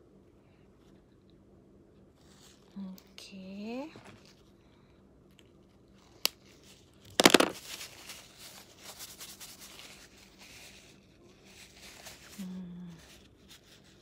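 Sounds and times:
paper tissue rustling: 6.5 - 14.0.

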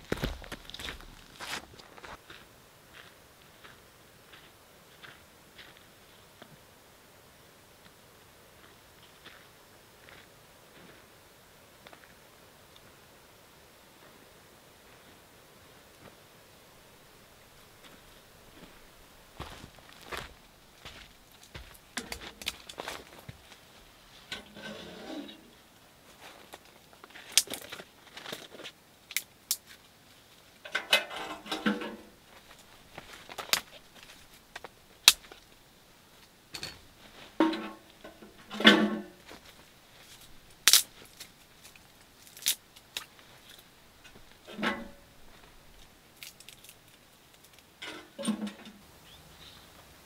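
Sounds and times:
dry twigs snapping: 27.3 - 27.8, 33.3 - 35.5, 40.5 - 43.6, 46.2 - 47.7.

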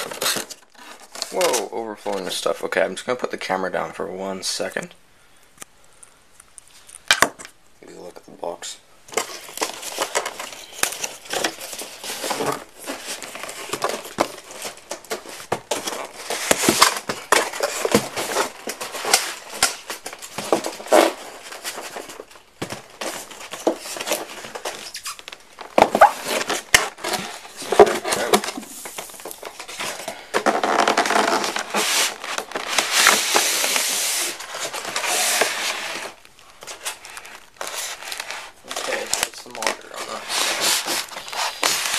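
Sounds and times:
packing material crinkling: 7.9 - 41.9
cardboard box crackling and scraping: 9.2 - 25.1, 25.7 - 36.2, 36.8 - 41.9.

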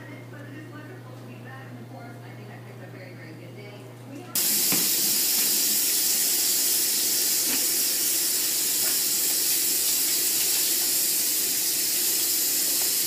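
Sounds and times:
faucet water splashing: 4.4 - 13.0.

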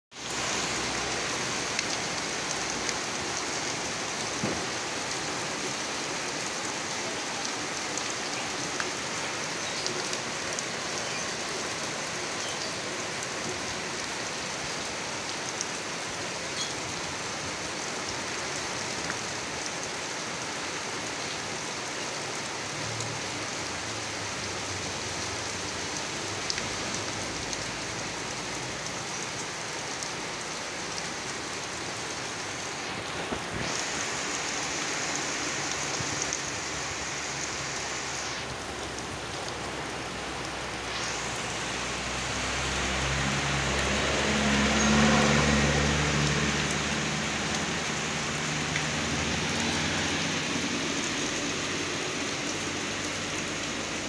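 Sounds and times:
rain falling on gravel: 0.1 - 54.0
sharp raindrop ticks: 0.4 - 6.7, 24.7 - 32.2, 33.0 - 54.0.

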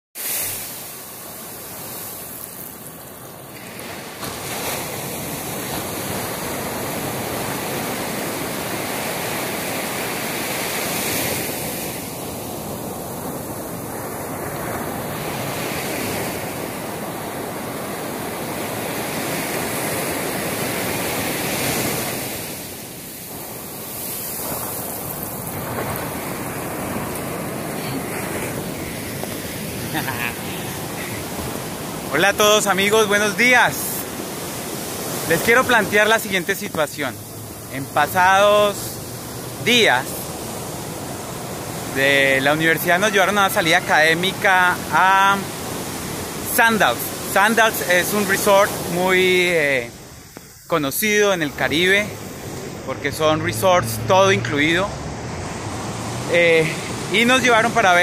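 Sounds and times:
ocean surf breaking on beach: 0.2 - 58.0.

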